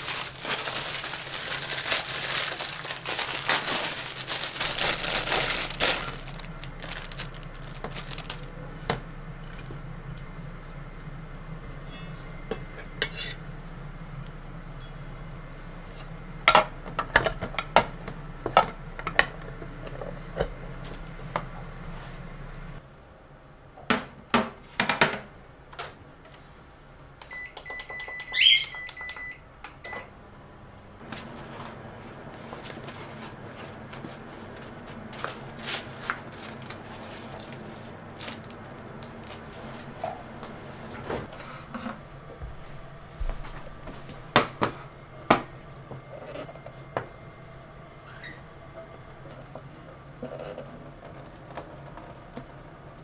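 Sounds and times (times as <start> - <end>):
microwave oven humming: 0.0 - 53.0
microwave beep: 27.2 - 30.2.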